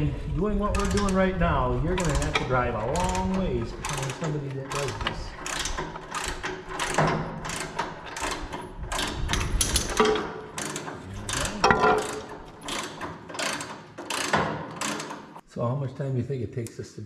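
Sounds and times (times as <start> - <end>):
ratchet wrench clicking: 0.7 - 1.4, 2.0 - 15.4
metal knocks: 1.9 - 15.4.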